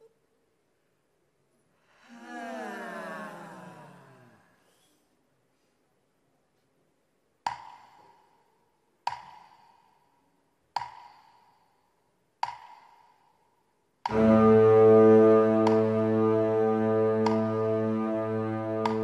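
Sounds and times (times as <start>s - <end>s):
synthesizer chord: 14.1s - 19.0s.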